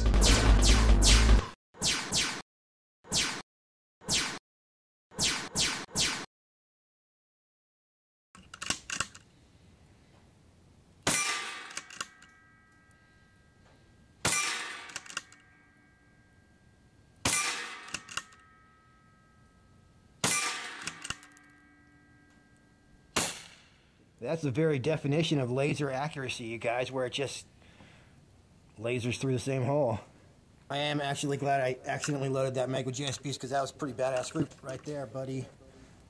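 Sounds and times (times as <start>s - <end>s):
air rifle shots: 11.0s - 12.1s, 14.2s - 15.2s, 17.2s - 18.2s, 20.2s - 21.2s, 23.2s - 23.8s
metallic ring: 11.1s - 23.7s.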